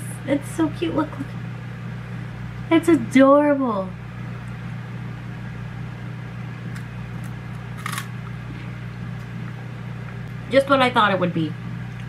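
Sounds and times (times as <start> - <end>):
low electrical hum: 0.0 - 12.0
crunch of snack being bitten: 6.8 - 8.1.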